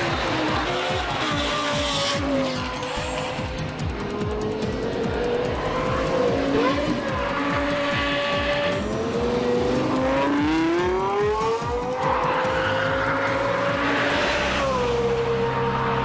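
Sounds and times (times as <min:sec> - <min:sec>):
car engine revving hard: 0:00.0 - 0:16.0.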